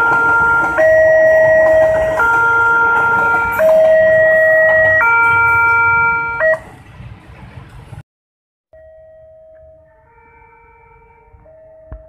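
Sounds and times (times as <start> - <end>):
two-tone crossing alarm: 0.0 - 6.7, 8.7 - 12.0
passing train rumble: 0.0 - 8.0.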